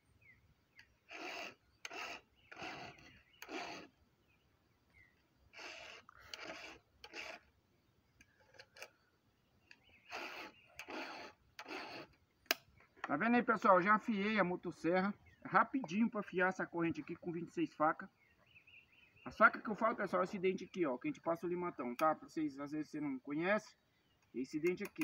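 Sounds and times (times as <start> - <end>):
file rasping on chainsaw chain: 1.1 - 4.0, 5.5 - 7.5, 10.0 - 12.2.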